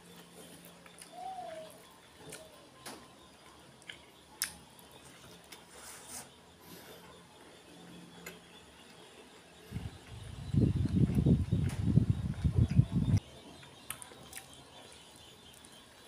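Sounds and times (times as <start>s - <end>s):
chewing with wet mouth noises: 3.4s - 5.9s.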